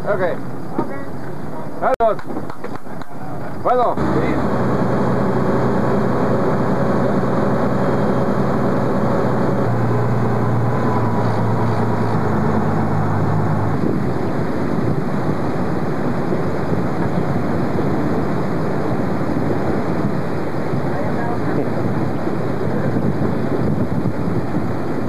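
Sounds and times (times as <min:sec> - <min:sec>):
wind buffeting microphone: 0:02.0 - 0:25.0
boat engine running: 0:03.8 - 0:25.0
water rushing past: 0:03.9 - 0:25.0.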